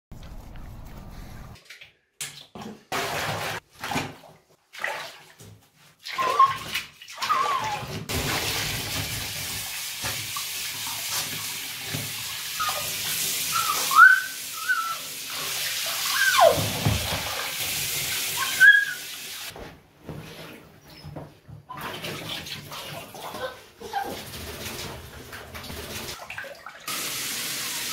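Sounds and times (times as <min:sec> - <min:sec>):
water splashing: 0:06.0 - 0:19.4
dog whining: 0:06.2 - 0:07.9, 0:13.5 - 0:15.2, 0:15.8 - 0:16.8, 0:18.4 - 0:19.2
shower sprayer running: 0:26.9 - 0:27.9.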